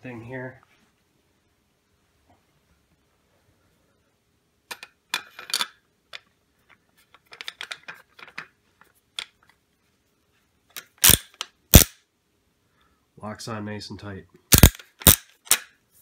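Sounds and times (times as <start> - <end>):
metal clicks and rattles: 4.7 - 8.5.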